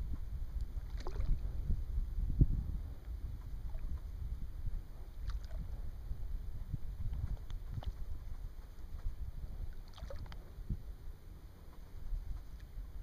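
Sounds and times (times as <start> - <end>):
wind rumbling on microphone: 0.0 - 13.0
water lapping against boat: 0.5 - 1.7, 3.4 - 10.6.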